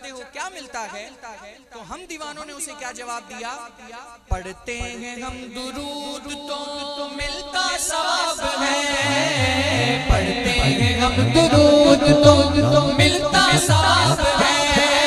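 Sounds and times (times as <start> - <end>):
man singing into a microphone: 2.4 - 15.0
group of men singing: 6.8 - 15.0
low repeating backing: 9.0 - 14.8.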